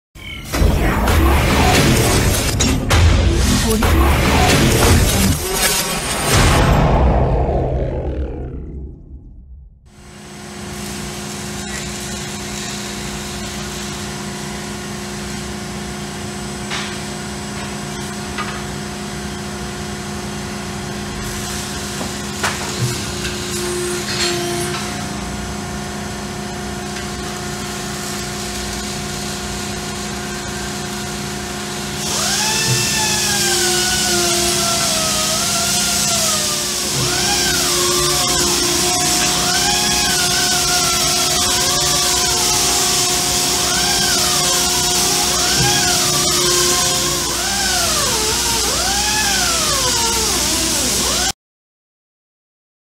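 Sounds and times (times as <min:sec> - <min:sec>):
machine hum: 0:00.3 - 0:51.3
wavering falling whine: 0:00.5 - 0:13.4, 0:36.1 - 0:49.0
hydraulic hiss: 0:31.9 - 0:51.3.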